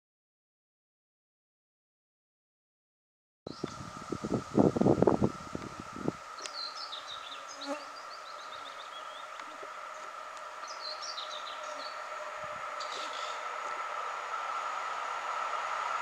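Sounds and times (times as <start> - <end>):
electric locomotive humming: 3.5 - 16.0
birds chirping: 5.5 - 14.4.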